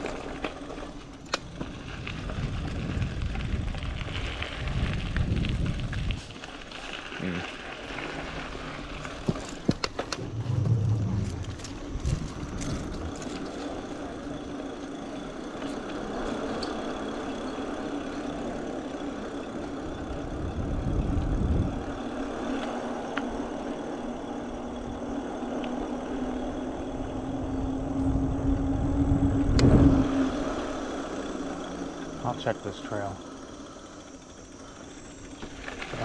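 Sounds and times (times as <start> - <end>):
electric bike motor humming: 0.0 - 36.0
tyre and trail noise: 0.0 - 36.0
low rumble: 10.1 - 13.4, 26.8 - 32.2.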